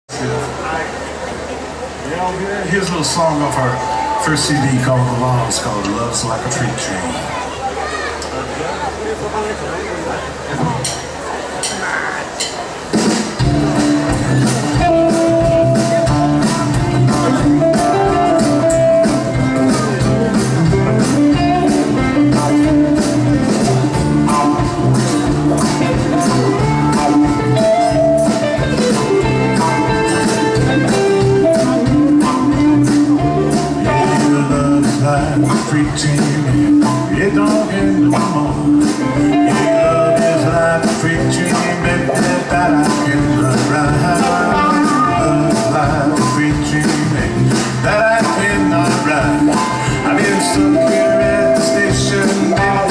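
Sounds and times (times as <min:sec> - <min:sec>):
blues-rock band playing: 0:02.6 - 0:08.0, 0:10.3 - 0:52.9
acoustic guitar: 0:10.5 - 0:52.9
steady drum beat: 0:10.6 - 0:52.9
electric guitar: 0:11.8 - 0:52.9
keyboard: 0:12.2 - 0:52.9
electric bass: 0:13.4 - 0:52.9.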